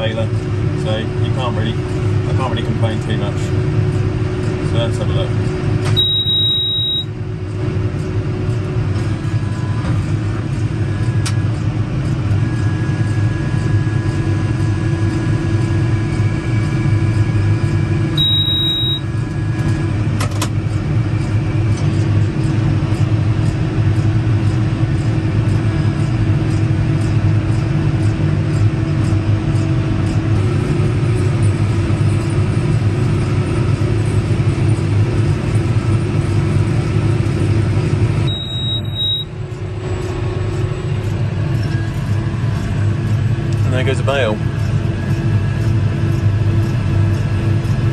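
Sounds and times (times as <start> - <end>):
tractor engine and baler hum: 0.0 - 47.9
short high electronic beep: 5.9 - 7.1, 18.2 - 19.1, 38.3 - 40.5.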